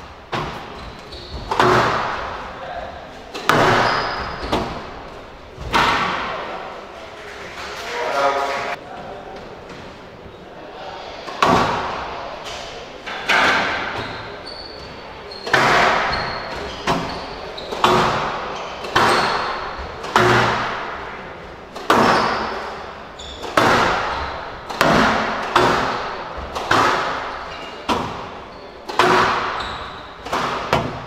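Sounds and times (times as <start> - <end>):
squash ball smacking rackets and walls: 0.0 - 6.7, 11.2 - 31.0.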